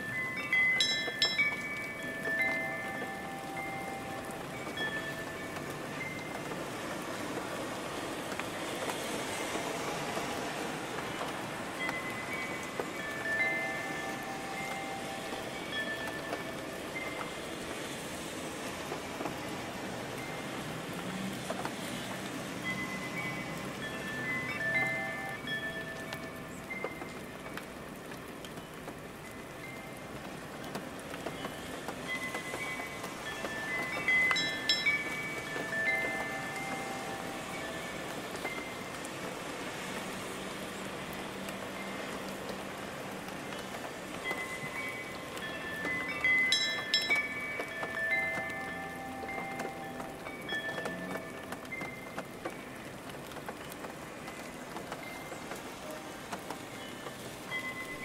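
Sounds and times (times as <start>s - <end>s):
faint wind chime tones: 0.0s - 6.5s, 11.1s - 18.3s, 22.5s - 27.6s, 31.2s - 39.0s, 43.6s - 52.9s, 53.6s - 58.0s
rain-like white-noise hiss: 0.0s - 58.0s
faint high chime tone: 11.9s - 17.2s, 22.7s - 27.0s, 32.1s - 38.8s.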